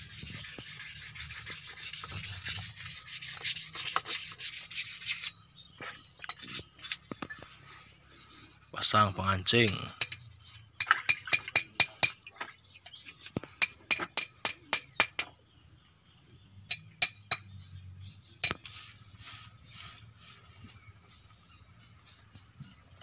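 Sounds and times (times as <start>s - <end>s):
hammer tapping steel: 11.1s - 12.2s, 13.6s - 15.3s.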